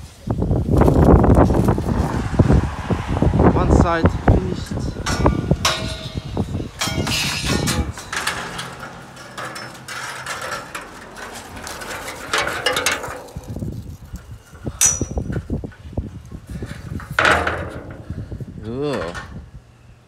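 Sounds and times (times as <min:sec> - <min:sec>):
metallic knocks and clicks: 0:05.0 - 0:13.5
rustling handling noise: 0:05.7 - 0:17.2.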